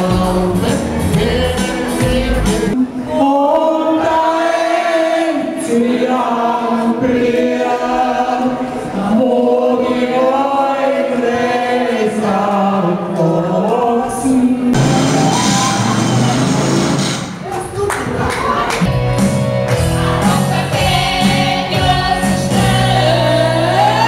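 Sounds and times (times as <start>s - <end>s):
music: 0.0s - 2.9s, 9.8s - 17.4s, 18.8s - 24.0s
voices singing in chorus: 0.0s - 15.0s, 19.9s - 24.0s.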